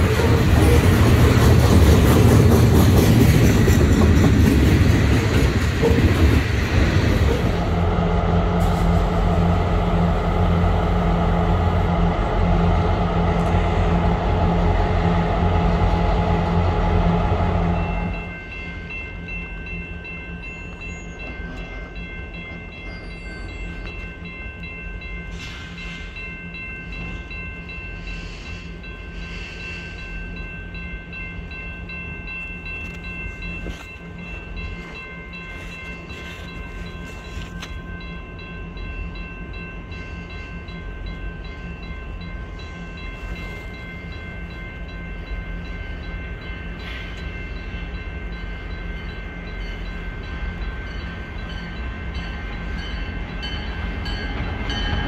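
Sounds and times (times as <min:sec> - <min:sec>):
locomotive engine rumble: 0:00.0 - 0:19.8
high ringing tones: 0:07.6 - 0:55.0.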